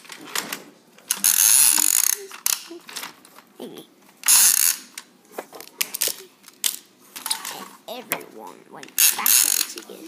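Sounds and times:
toy train pieces clicking and rattling: 0:01.1 - 0:02.8, 0:08.8 - 0:10.0.

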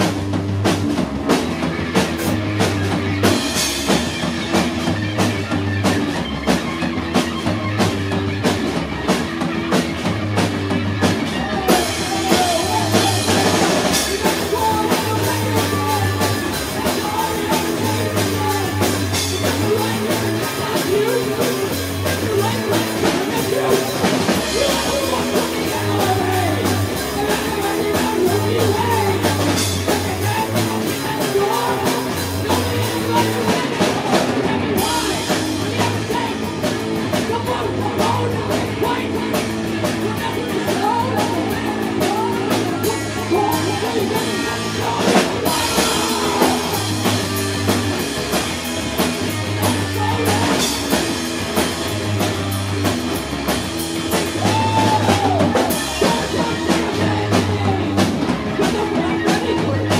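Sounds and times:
drum kit: 0:00.0 - 0:59.9
electric guitars: 0:00.0 - 0:59.9
person singing: 0:11.2 - 0:48.4, 0:49.0 - 0:51.2, 0:54.2 - 0:59.9.

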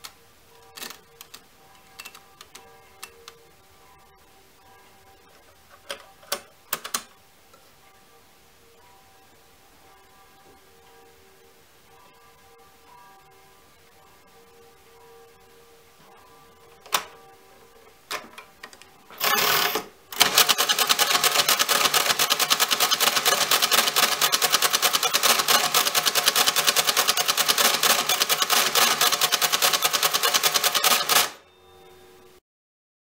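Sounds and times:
calculator clattering clicks: 0:19.2 - 0:31.4.

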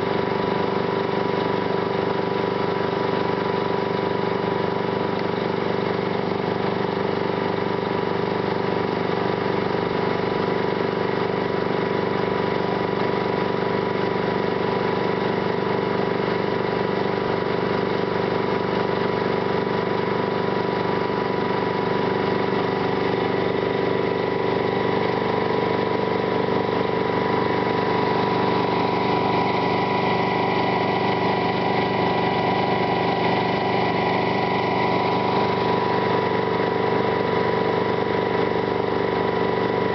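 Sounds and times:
fire truck pump engine running: 0:00.0 - 0:39.9.

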